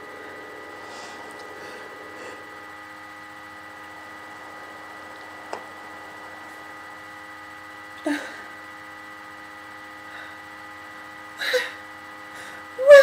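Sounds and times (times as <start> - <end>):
electrical hum with whining tones: 0.0 - 13.0
woman whimpering: 8.0 - 8.5, 11.4 - 11.8, 12.4 - 13.0.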